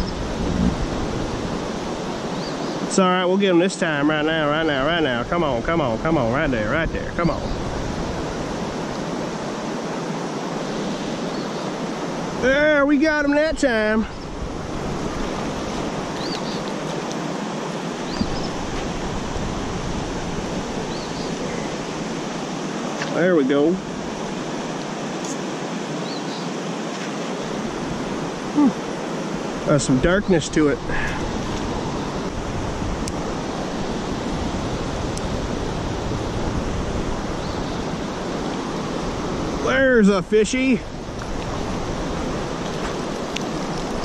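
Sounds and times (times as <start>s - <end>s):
wind buffeting microphone: 0.0s - 2.9s, 4.1s - 26.1s, 27.2s - 44.0s
creek water rushing: 0.0s - 44.0s
small bird chirping: 16.2s - 16.7s, 18.1s - 18.6s, 20.9s - 21.8s.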